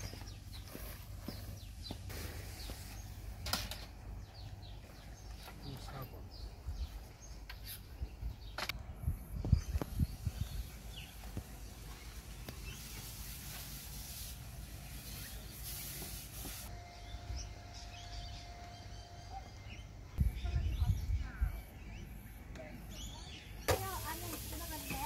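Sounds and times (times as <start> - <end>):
wind buffeting microphone: 7.9 - 11.6, 20.2 - 21.6.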